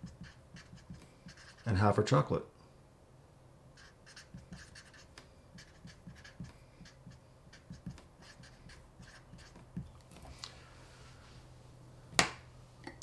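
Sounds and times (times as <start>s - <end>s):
marker pen writing on paper: 0.0s - 1.9s, 3.8s - 10.3s.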